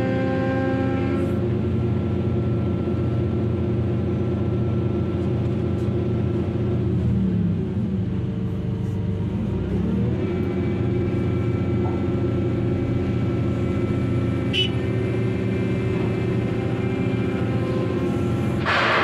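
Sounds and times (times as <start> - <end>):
heavy diesel hydraulic machinery: 0.0 - 19.0.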